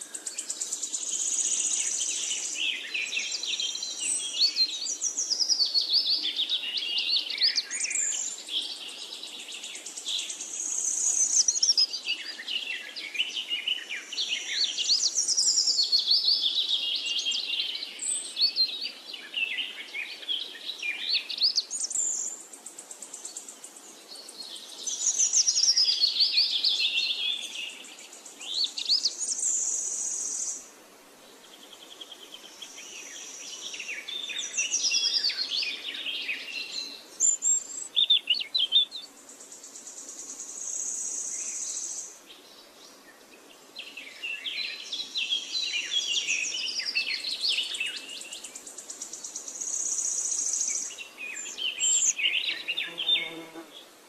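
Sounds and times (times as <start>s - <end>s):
birds chirping and singing: 31.9s - 39.8s, 40.8s - 53.7s.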